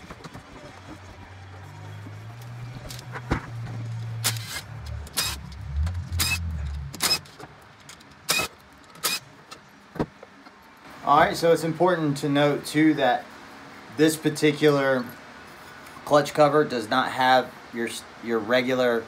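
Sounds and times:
cordless power tool whirring: 4.2s - 7.3s, 8.3s - 9.2s.

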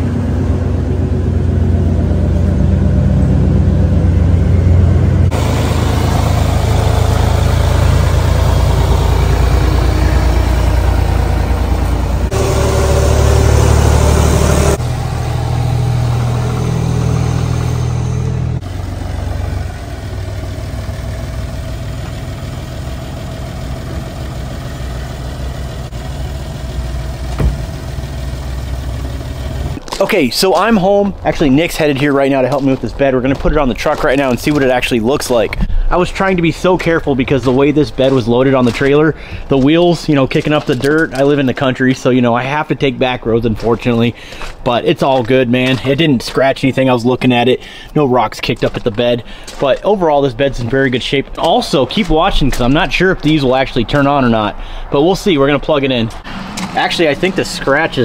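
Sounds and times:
truck engine low drone: 0.0s - 58.0s.

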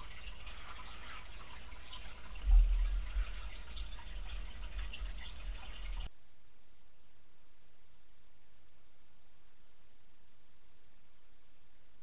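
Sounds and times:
aquarium water trickling: 0.0s - 6.1s
low thump: 2.4s - 3.4s.

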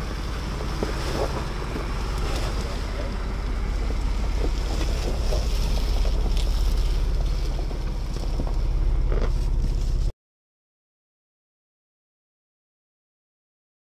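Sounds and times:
truck engine running: 0.0s - 10.1s.

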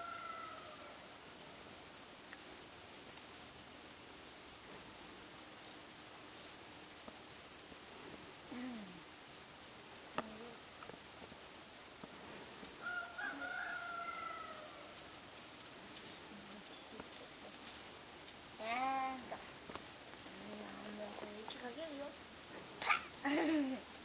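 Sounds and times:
rooster crowing: 0.0s - 1.0s, 12.8s - 15.0s.

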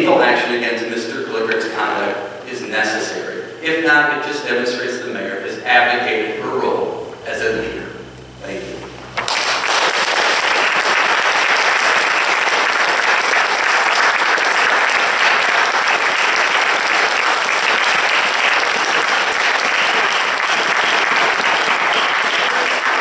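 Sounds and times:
audience applause: 9.2s - 23.0s.

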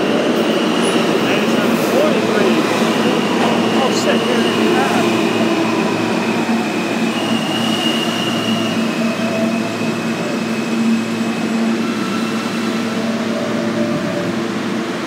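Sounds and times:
train wheels rumbling on rail: 0.0s - 15.0s
high wheel squeal: 7.0s - 10.8s.

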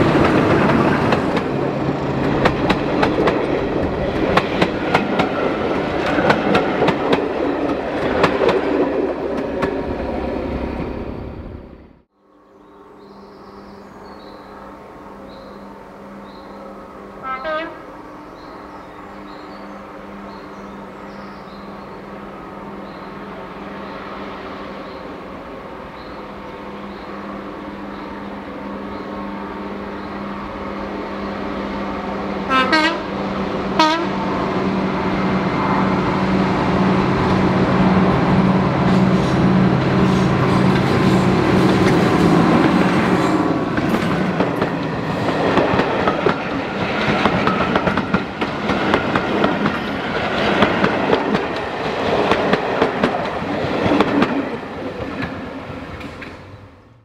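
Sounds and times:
diesel locomotive engine: 0.0s - 57.0s
train horn blasts: 13.8s - 20.8s, 32.5s - 34.4s.

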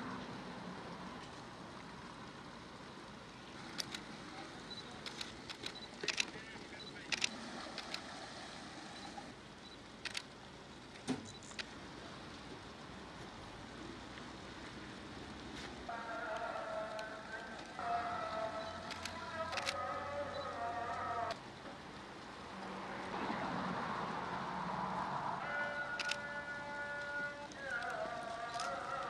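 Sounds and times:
steady background noise: 0.0s - 29.0s
faint high-pitched beep: 6.8s - 7.0s.

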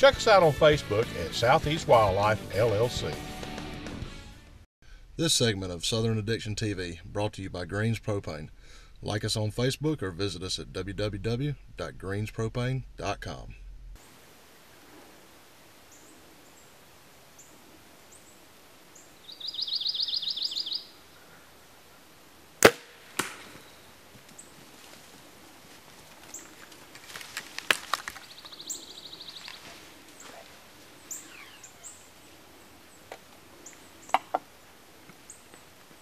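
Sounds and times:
small clicks and rustles: 25.7s - 28.6s.

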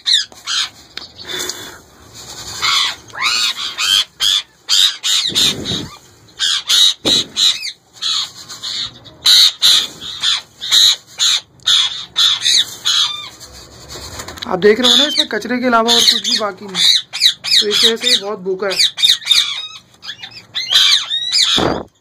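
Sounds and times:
parakeet squawking: 0.0s - 1.4s, 2.6s - 13.4s, 14.5s - 21.9s.

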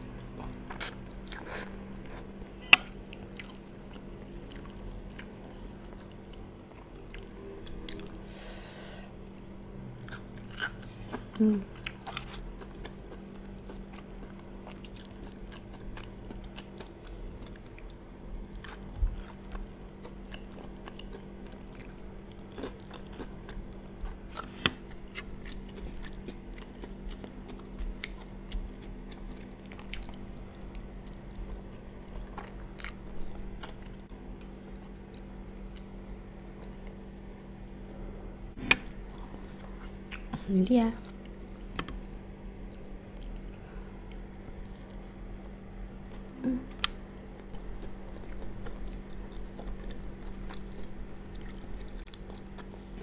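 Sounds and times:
chewing and wet mouth clicks: 3.0s - 8.2s, 9.2s - 35.9s, 47.6s - 52.8s.

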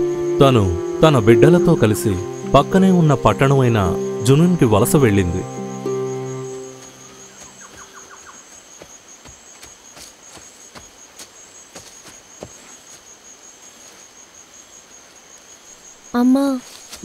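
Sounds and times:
held music chord: 0.0s - 7.7s
insects chirring: 0.0s - 17.0s
footsteps on dirt path: 6.6s - 14.2s, 16.6s - 17.0s.

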